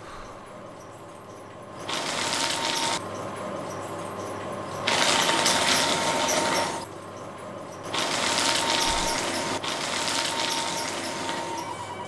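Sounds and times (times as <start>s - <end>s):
paper shredder running: 1.8s - 3.0s, 4.9s - 6.8s, 7.9s - 12.0s.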